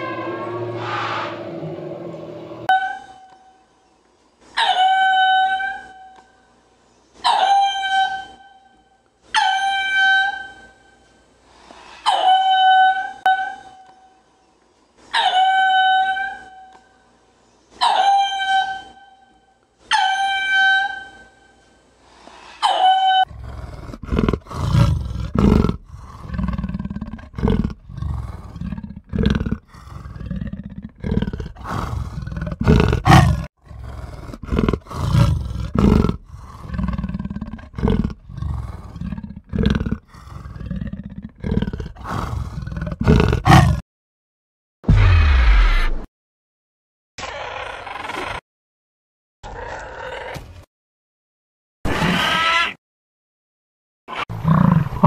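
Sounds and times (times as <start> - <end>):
big cat growling: 23.3 - 43.8, 54.3 - 55.0.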